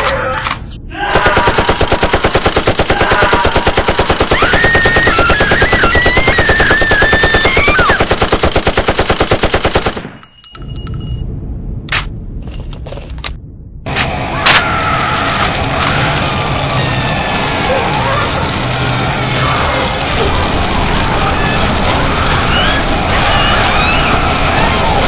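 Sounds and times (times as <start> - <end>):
low rumble: 10.2 - 25.0.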